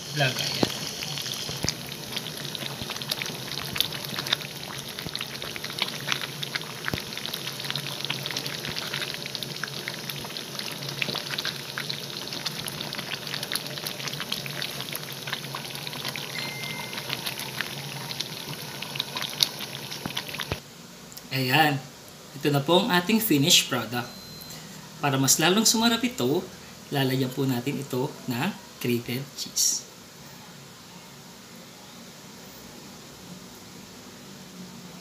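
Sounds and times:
stew sauce bubbling: 0:00.0 - 0:20.6.

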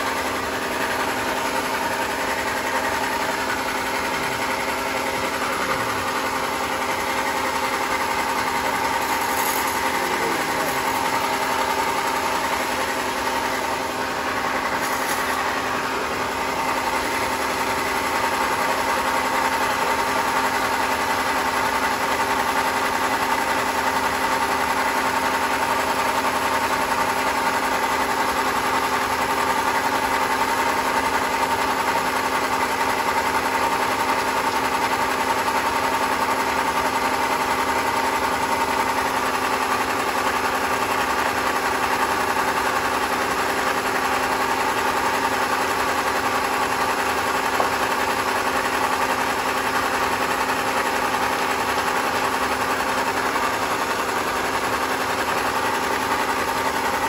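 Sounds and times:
band sawmill humming: 0:00.0 - 0:19.0.

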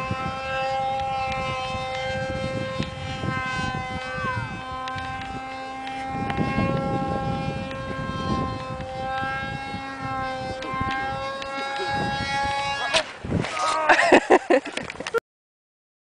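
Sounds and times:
model airplane motor whine: 0:00.0 - 0:15.1
wind buffeting microphone: 0:00.0 - 0:15.2.

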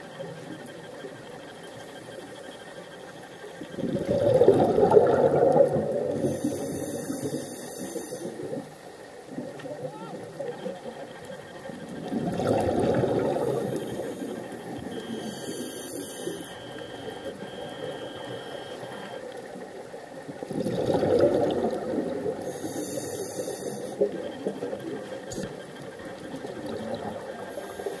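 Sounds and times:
water noise: 0:00.0 - 0:28.0
exhaled bubbles burbling: 0:03.7 - 0:07.1, 0:11.8 - 0:15.0, 0:20.2 - 0:22.8, 0:24.0 - 0:27.4
regulator breathing hiss: 0:06.0 - 0:09.1, 0:13.3 - 0:17.4, 0:22.4 - 0:24.2, 0:27.4 - 0:28.0.

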